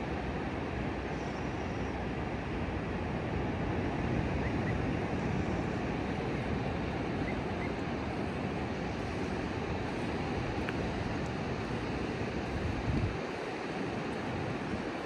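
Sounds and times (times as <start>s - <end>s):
surf washing on a beach: 0.0s - 15.0s
wind on microphone: 3.0s - 15.0s.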